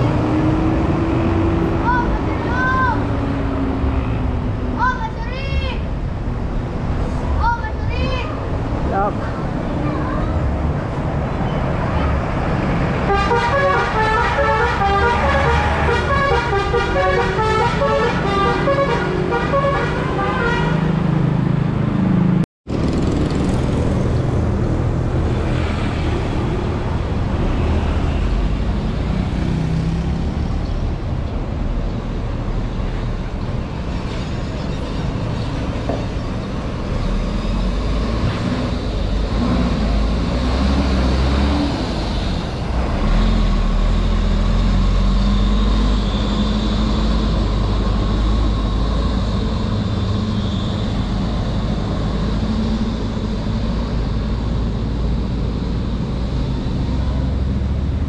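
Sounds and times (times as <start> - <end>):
bus engine rumbling: 0.0 - 58.0
traffic noise: 0.0 - 58.0
musical bus air horn: 13.0 - 21.0.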